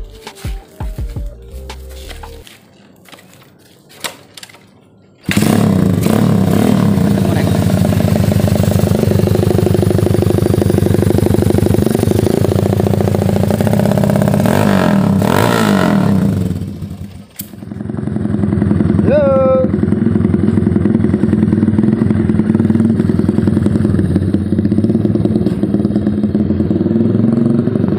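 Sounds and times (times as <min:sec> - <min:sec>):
motorcycle kick-start: 0:04.0 - 0:13.3, 0:16.4 - 0:19.0, 0:20.0 - 0:26.2
motorcycle engine running: 0:05.2 - 0:27.9.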